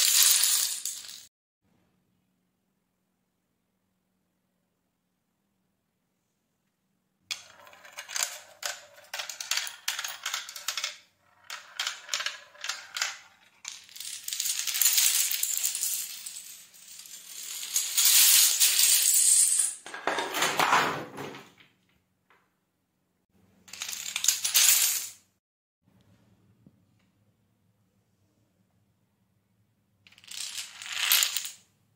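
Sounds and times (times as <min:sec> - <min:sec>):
dominoes clattering on tile: 0:00.0 - 0:01.3, 0:07.3 - 0:20.0, 0:23.7 - 0:25.2, 0:30.1 - 0:31.6.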